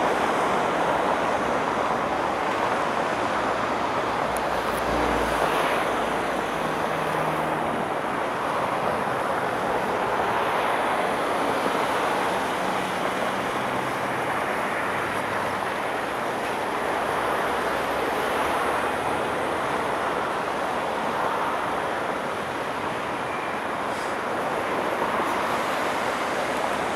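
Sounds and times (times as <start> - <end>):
tyres hissing on wet road: 0.0 - 26.9.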